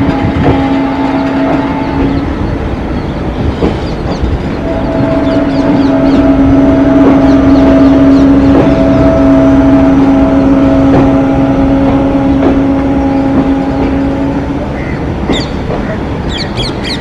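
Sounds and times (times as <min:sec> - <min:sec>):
diesel locomotive horn blast: 0:00.0 - 0:02.9, 0:04.4 - 0:17.0
wheels knocking on rail joints: 0:00.0 - 0:06.4, 0:14.8 - 0:17.0
low rumble of moving train: 0:00.0 - 0:17.0.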